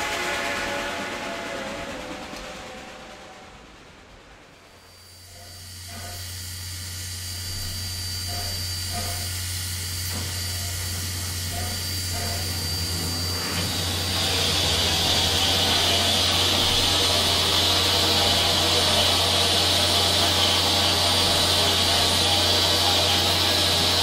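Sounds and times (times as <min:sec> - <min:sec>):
steam locomotive hissing: 0:00.0 - 0:24.0.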